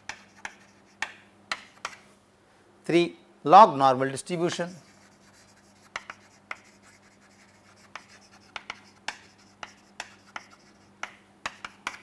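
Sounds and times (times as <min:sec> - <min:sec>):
chalk writing on chalkboard: 0:00.0 - 0:02.1, 0:04.5 - 0:12.0.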